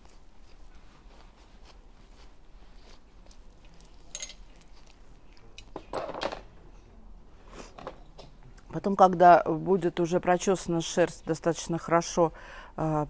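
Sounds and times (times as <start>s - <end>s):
brush scraping through dog coat: 0.0s - 4.1s.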